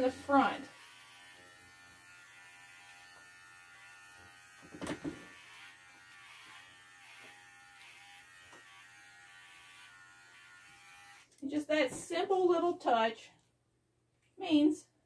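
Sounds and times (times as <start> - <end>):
dog clipper running: 0.4 - 11.4.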